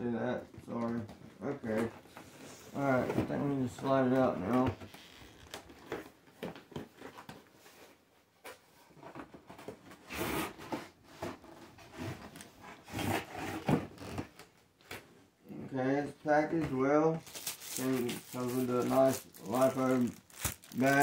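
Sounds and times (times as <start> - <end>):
cardboard scraping: 10.0 - 14.3, 17.3 - 21.0.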